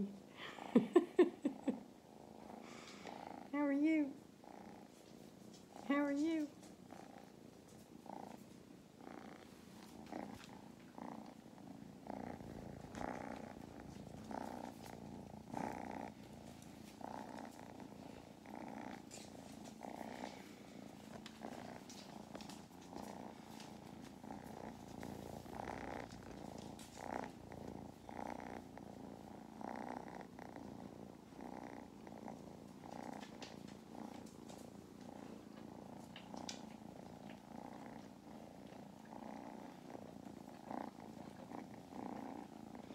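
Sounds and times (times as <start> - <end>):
kittens purring: 0.0 - 42.9.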